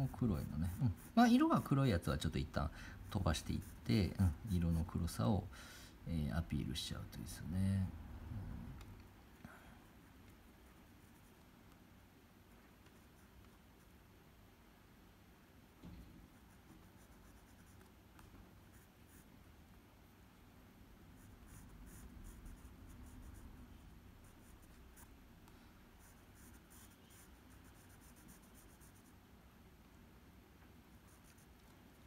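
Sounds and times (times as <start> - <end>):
pencil scratching on paper: 0.0 - 1.4, 3.0 - 5.0, 21.2 - 23.4, 24.2 - 25.2, 26.0 - 29.2, 30.9 - 31.5.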